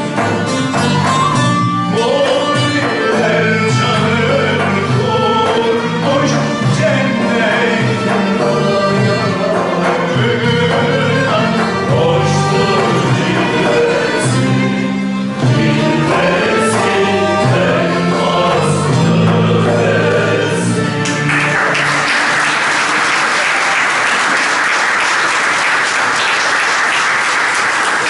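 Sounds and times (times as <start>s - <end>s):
folk lutes and voices: 0.0s - 21.8s
audience applause: 21.0s - 28.0s.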